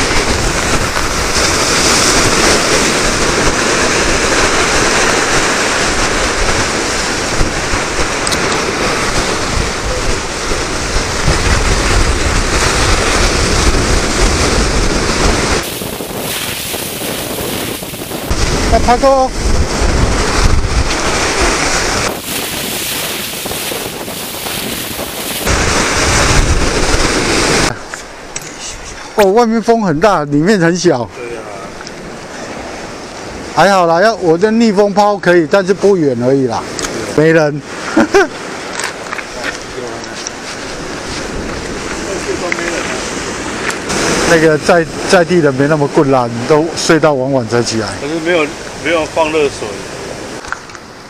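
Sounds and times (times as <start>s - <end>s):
wind buffeting microphone: 0.0s - 27.9s, 38.4s - 45.1s
sea waves breaking: 0.0s - 29.2s, 30.8s - 34.4s, 35.4s - 51.0s.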